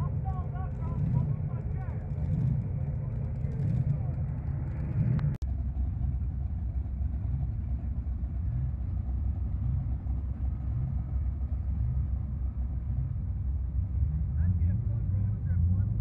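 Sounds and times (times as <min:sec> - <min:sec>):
car engine running: 0:00.0 - 0:16.0.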